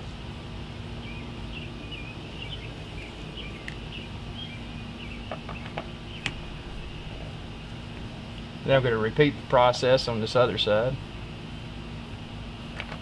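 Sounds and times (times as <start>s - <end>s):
low outdoor rumble: 0.0s - 13.0s
small birds chirping: 0.7s - 9.3s.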